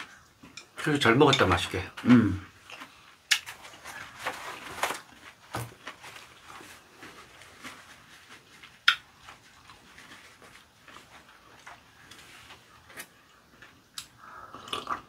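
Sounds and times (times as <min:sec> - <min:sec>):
faint rustling: 0:02.7 - 0:13.1.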